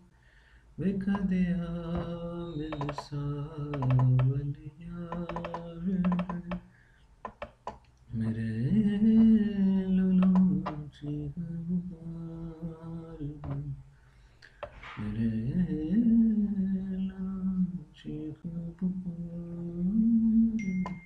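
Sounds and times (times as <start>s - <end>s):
man humming: 0.8s - 6.6s, 8.1s - 13.8s
computer clicks: 2.0s - 4.4s, 5.1s - 8.0s, 10.1s - 11.2s.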